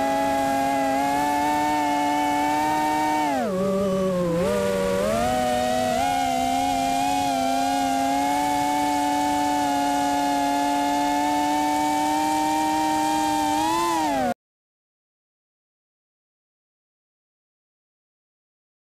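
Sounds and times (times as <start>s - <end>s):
quadcopter motors whining: 0.0s - 14.4s.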